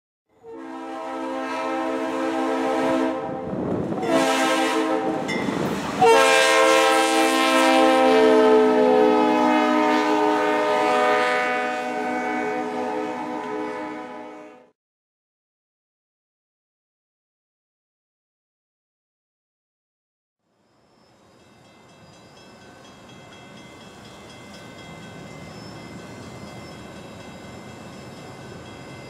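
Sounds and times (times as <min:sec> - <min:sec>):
locomotive air horn chord: 0:00.4 - 0:05.3, 0:06.0 - 0:14.8
passing train rushing: 0:00.4 - 0:14.6, 0:20.6 - 0:29.0.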